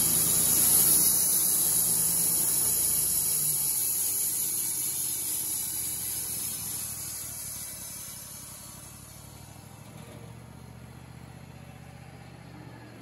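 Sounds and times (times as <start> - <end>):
band saw blade cutting wood: 0.0 - 8.9
sawmill motor running: 0.0 - 13.0.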